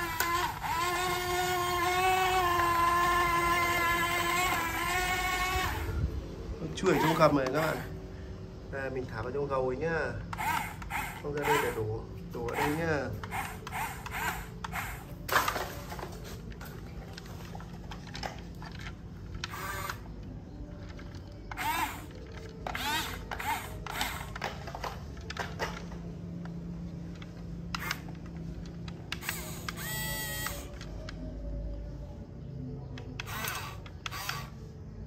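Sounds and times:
toy electric motors whirring: 0:00.0 - 0:08.0, 0:10.3 - 0:26.0, 0:27.0 - 0:30.9, 0:33.0 - 0:34.8.

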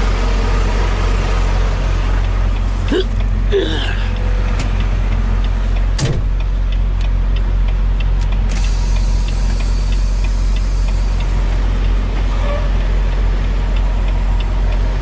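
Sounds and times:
diesel truck engine running: 0:00.0 - 0:15.0
faint regular ticking: 0:04.1 - 0:12.2.

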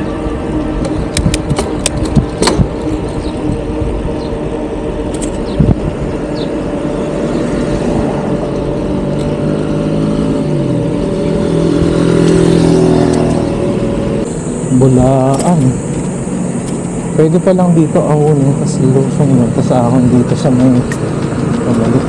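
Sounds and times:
bicycle road noise rush: 0:00.0 - 0:22.0
steady hum tones: 0:00.0 - 0:22.0.

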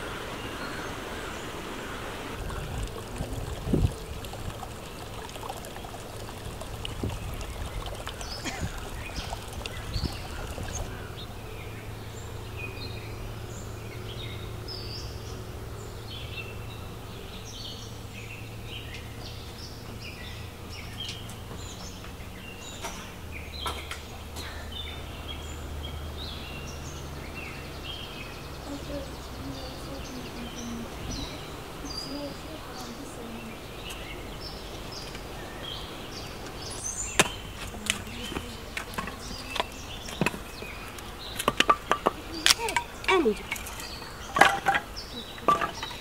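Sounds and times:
running water: 0:00.0 - 0:12.6, 0:20.4 - 0:46.0
steady low rumble: 0:00.0 - 0:15.6
small birds chirping: 0:00.0 - 0:46.0.

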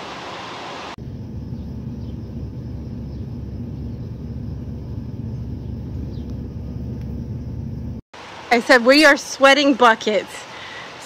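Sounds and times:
steady low rumble: 0:01.0 - 0:08.0.

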